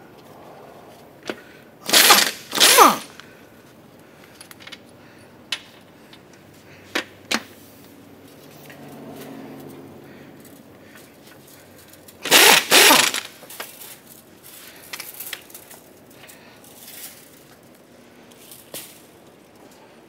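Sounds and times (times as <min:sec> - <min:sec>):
pneumatic impact wrench bursts: 0:01.8 - 0:03.2, 0:12.2 - 0:13.8.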